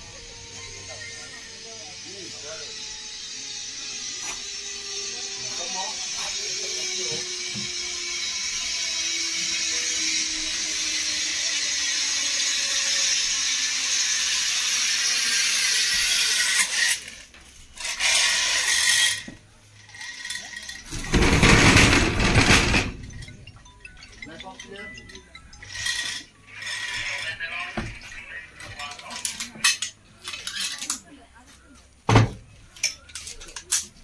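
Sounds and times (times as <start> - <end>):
zip line pulleys rolling on cable: 0.0 - 27.5, 28.7 - 31.0
bursts of noise: 20.9 - 24.2.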